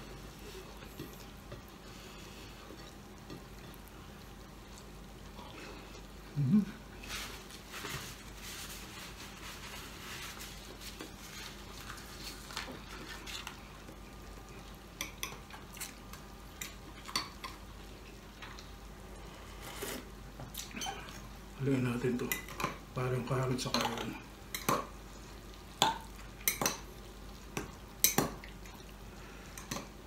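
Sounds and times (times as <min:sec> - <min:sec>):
soft eating sounds: 0:00.0 - 0:30.0
meat sizzling in a pan: 0:24.2 - 0:30.0.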